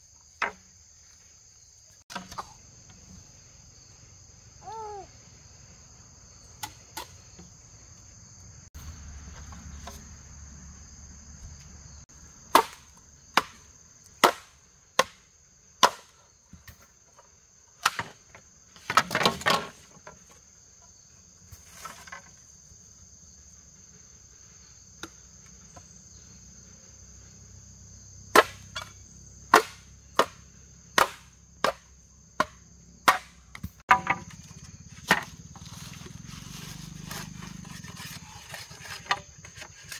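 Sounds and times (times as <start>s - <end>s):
insects buzzing: 0.0s - 39.9s
machete chopping bamboo: 12.5s - 16.2s, 28.3s - 35.4s.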